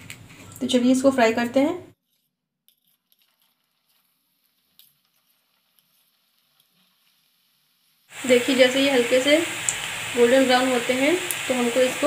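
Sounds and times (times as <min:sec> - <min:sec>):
hot oil crackling: 0:02.7 - 0:12.0.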